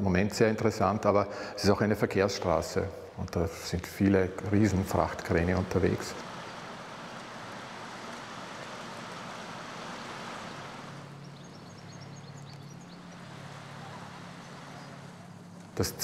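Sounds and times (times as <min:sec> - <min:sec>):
boat engine hum: 0:00.0 - 0:16.0
water rushing along hull: 0:02.4 - 0:16.0
bird chirps: 0:09.8 - 0:15.8.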